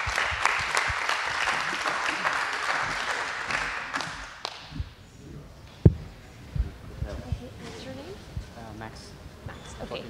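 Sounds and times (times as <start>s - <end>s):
audience applause: 0.0s - 4.7s.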